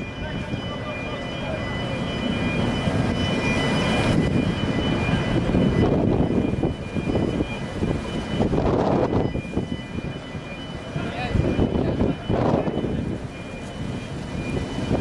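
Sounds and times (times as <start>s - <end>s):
ferry machinery rumbling drone: 0.0s - 15.0s.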